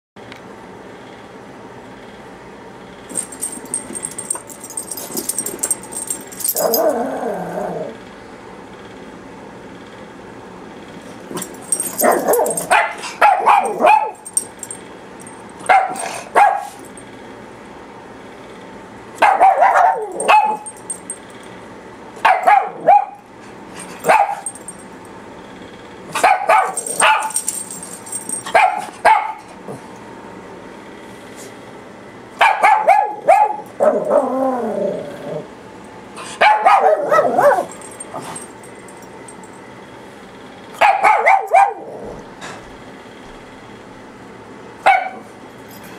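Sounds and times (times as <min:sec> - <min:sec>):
small dogs barking: 0:03.1 - 0:07.9, 0:11.3 - 0:14.6, 0:15.6 - 0:16.8, 0:19.2 - 0:20.8, 0:22.2 - 0:23.2, 0:24.0 - 0:24.7, 0:26.1 - 0:29.6, 0:32.4 - 0:34.4, 0:36.2 - 0:38.5, 0:40.8 - 0:42.2, 0:44.8 - 0:45.3.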